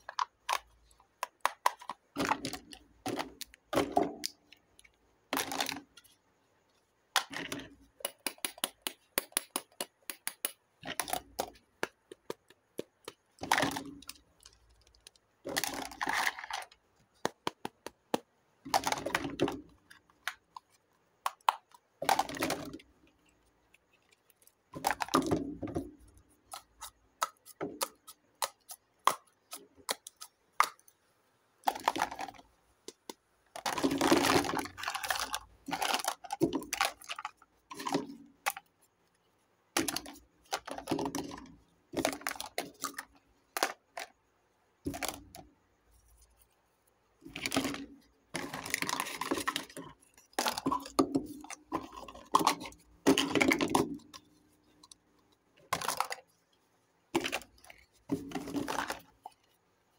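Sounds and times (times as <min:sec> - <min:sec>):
plastic toys clattering: 0:00.0 - 0:06.1, 0:07.2 - 0:08.8, 0:10.8 - 0:16.8, 0:18.6 - 0:20.7, 0:21.3 - 0:30.8, 0:31.6 - 0:32.4, 0:33.5 - 0:38.7, 0:39.8 - 0:44.1, 0:44.8 - 0:45.5, 0:47.2 - 0:55.0, 0:55.6 - 0:56.4, 0:57.1 - 0:59.5.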